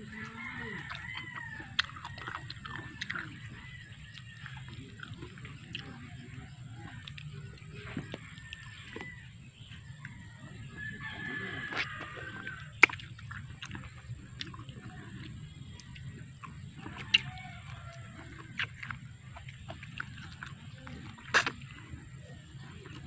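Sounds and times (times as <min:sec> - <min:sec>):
rooster crowing: 0:00.0 - 0:02.8, 0:10.1 - 0:12.8, 0:17.0 - 0:18.6.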